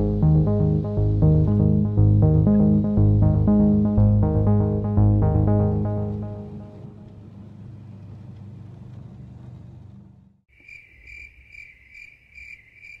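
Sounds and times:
aircraft engine rumble: 0:06.0 - 0:10.2
insects chirping: 0:10.5 - 0:13.0.

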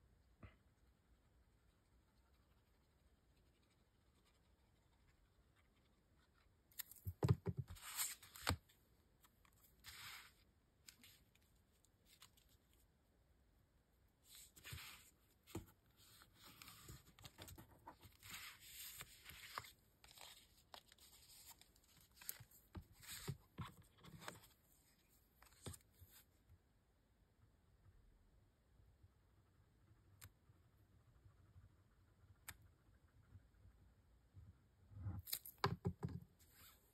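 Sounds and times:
paper rustling and scraping: 0:07.5 - 0:08.6, 0:09.8 - 0:11.3, 0:14.3 - 0:24.5.

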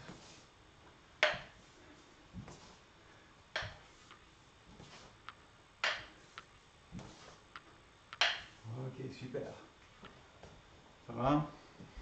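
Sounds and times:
sharp knocks: 0:01.2 - 0:01.5, 0:03.6 - 0:03.8
bare feet stepping on wooden floor: 0:02.3 - 0:02.8, 0:03.6 - 0:08.6.

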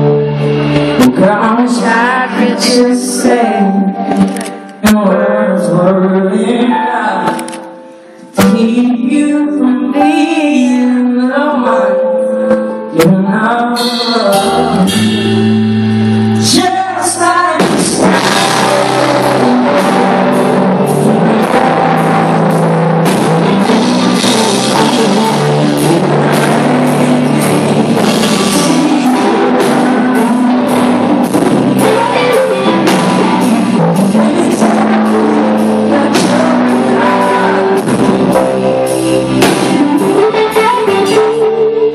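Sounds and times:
electric guitar: 0:00.0 - 0:41.9
man singing: 0:01.0 - 0:15.4, 0:16.4 - 0:41.9
band with drums: 0:13.8 - 0:41.9.

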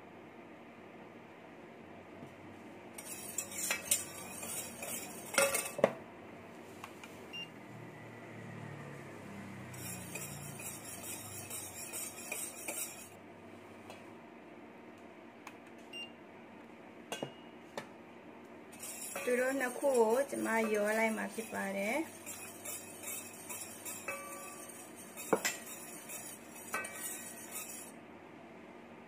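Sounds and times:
whisk scraping a metal bowl: 0:03.0 - 0:05.8, 0:09.7 - 0:13.2, 0:18.7 - 0:28.0.

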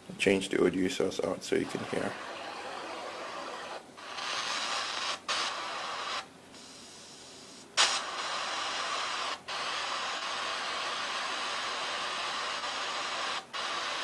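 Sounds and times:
radio static hiss: 0:00.5 - 0:14.0.

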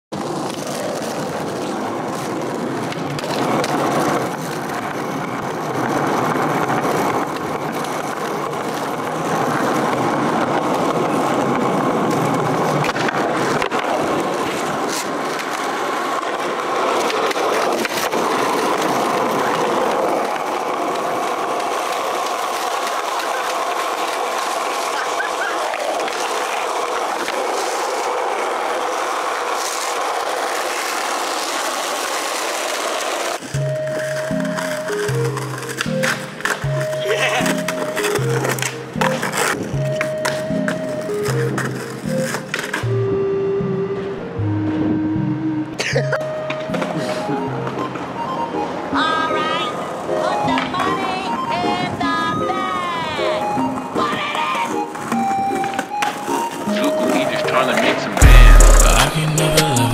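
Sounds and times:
skateboard clacks: 0:00.1 - 0:43.0, 0:45.8 - 0:59.9
skateboard wheels rolling: 0:00.1 - 0:59.9.

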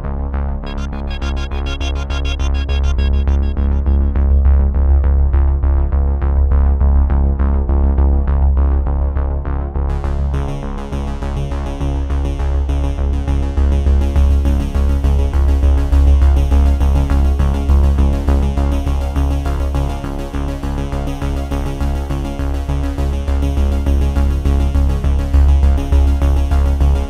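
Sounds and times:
electronic music with synthesizer beat: 0:00.6 - 0:05.3.

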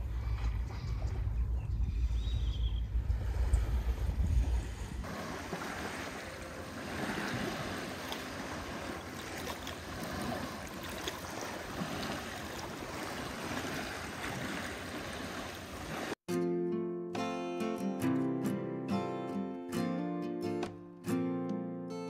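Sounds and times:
small waves lapping at rocky shore: 0:04.5 - 0:16.2.

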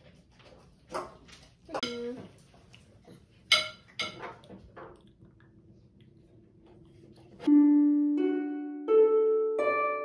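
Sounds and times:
plucked string notes: 0:07.5 - 0:10.0.

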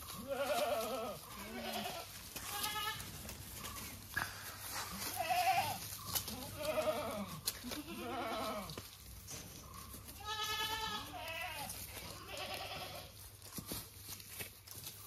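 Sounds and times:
goats bleating: 0:00.0 - 0:03.4, 0:04.6 - 0:08.8, 0:10.1 - 0:13.2.

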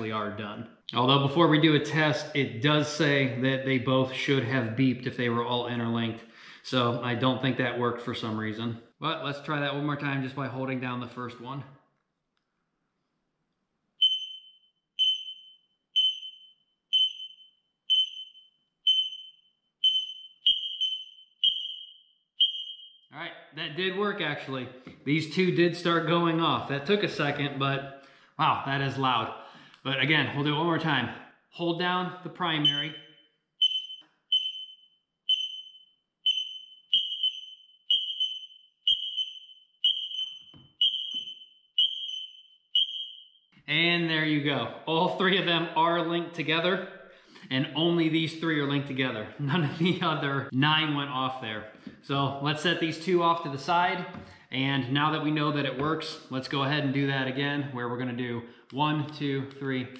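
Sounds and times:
second alarms beeping: 0:14.0 - 0:23.1, 0:32.6 - 0:43.5
smoke alarm beeping: 0:14.0 - 0:23.1, 0:32.6 - 0:43.5.

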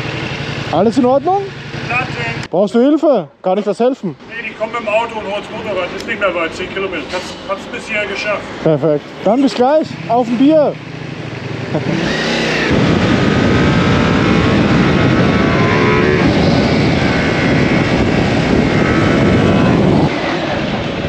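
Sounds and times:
motorcycle engine at speed: 0:00.0 - 0:02.5, 0:09.9 - 0:21.0
road noise: 0:00.0 - 0:21.0
wind noise: 0:11.8 - 0:21.0.

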